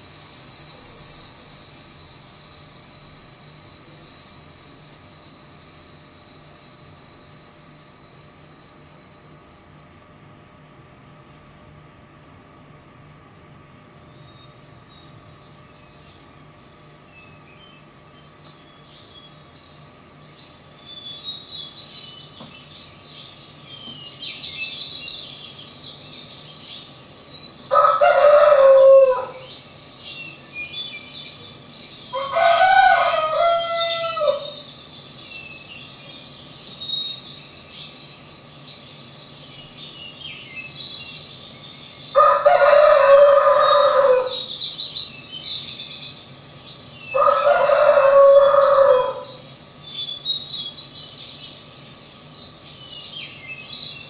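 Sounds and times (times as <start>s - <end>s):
birds chirping: 0.0s - 10.2s, 12.8s - 54.0s
rooster crowing: 27.6s - 29.6s, 32.1s - 34.7s, 42.0s - 44.5s, 47.1s - 49.5s.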